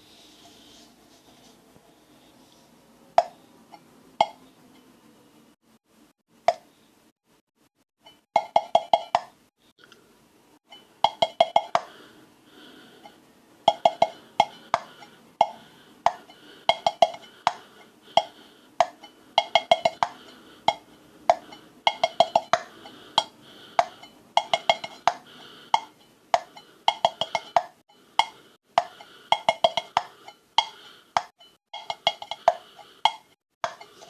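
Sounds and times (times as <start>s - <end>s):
fingers drumming on tin can: 11.0s - 11.9s, 13.7s - 34.0s.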